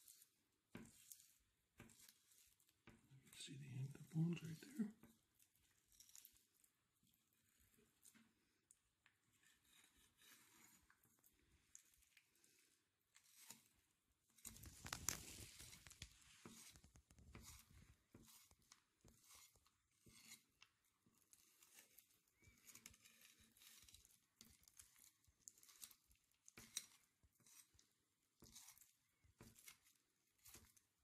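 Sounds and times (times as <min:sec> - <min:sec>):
knife slicing fish: 0:00.0 - 0:02.8, 0:13.2 - 0:13.8, 0:15.6 - 0:31.0.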